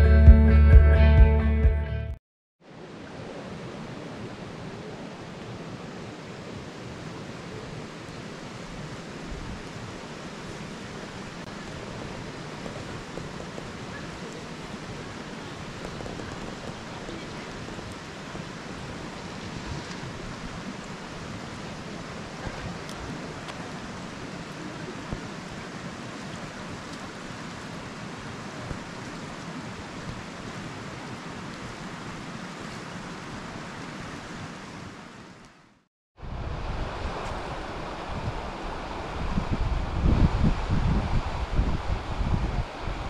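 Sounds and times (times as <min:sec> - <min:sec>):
flowing river rushing: 0:02.6 - 0:43.0
wind buffeting microphone: 0:36.2 - 0:43.0.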